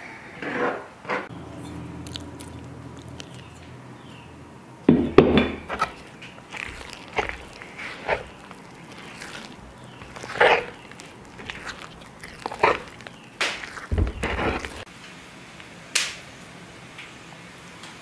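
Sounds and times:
cookie dough squelching and slapping: 0:01.6 - 0:03.6, 0:05.2 - 0:14.9.

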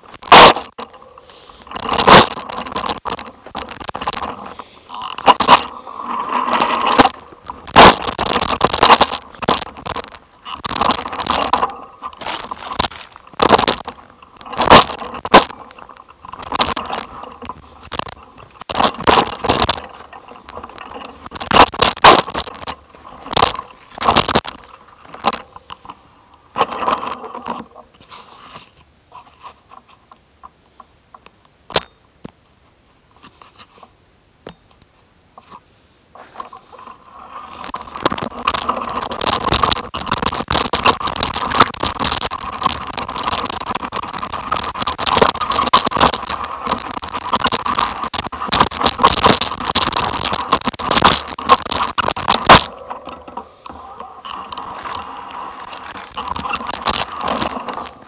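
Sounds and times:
tyres crunching on gravel: 0:00.0 - 0:27.8, 0:36.2 - 0:58.0
small ticks: 0:36.2 - 0:58.0.

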